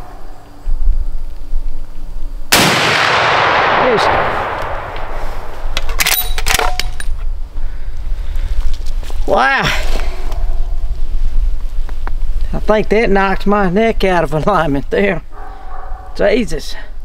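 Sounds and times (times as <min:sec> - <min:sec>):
rifle shot: 0:02.5 - 0:06.8
rifle lever clicks and clanks: 0:05.8 - 0:07.1.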